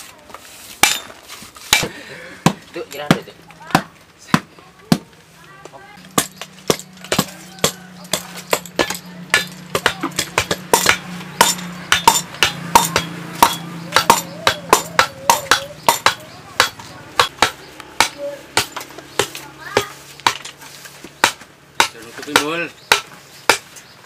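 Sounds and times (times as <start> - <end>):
metal tool pounding into steel mould: 6.1 - 18.8.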